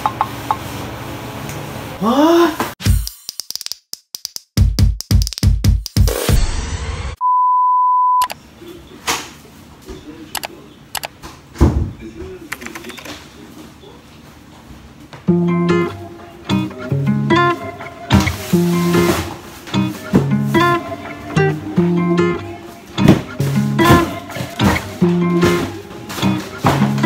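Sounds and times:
steady electronic beep: 7.2 - 8.3
guitar music: 15.3 - 27.0.

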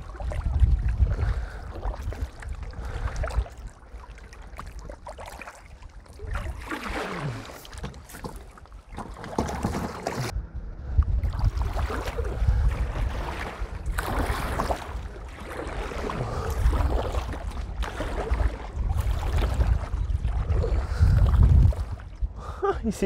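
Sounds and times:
wind buffeting microphone: 0.0 - 5.0, 9.3 - 23.0
water lapping against kayak hull: 0.0 - 10.4, 11.1 - 22.6.

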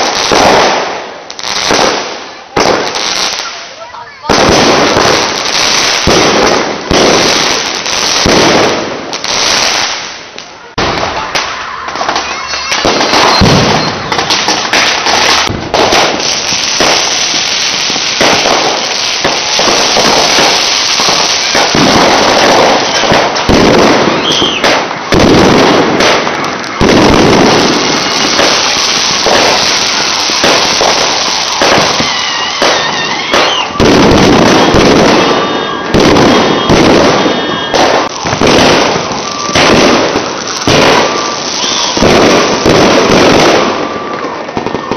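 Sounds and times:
fireworks bangs and crackling: 0.0 - 44.9
firework whistles: 11.0 - 44.9.

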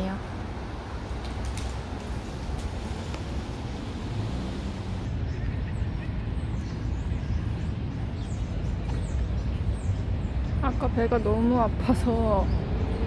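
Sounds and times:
traffic rumble: 0.0 - 13.0
small birds chirping: 4.4 - 13.0.

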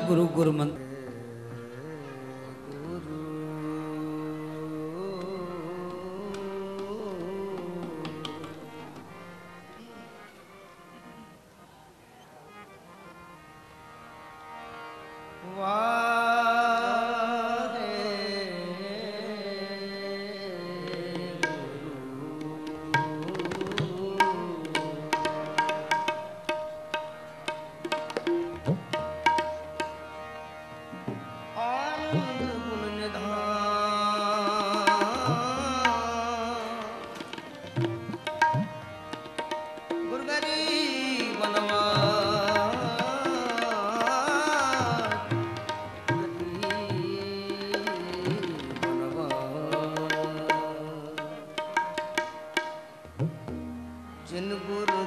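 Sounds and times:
man singing a hymn: 0.0 - 8.9, 15.5 - 25.1, 31.5 - 37.1, 46.4 - 51.2
harmonium: 0.0 - 55.0
tabla strokes: 22.5 - 30.1, 36.8 - 55.0.

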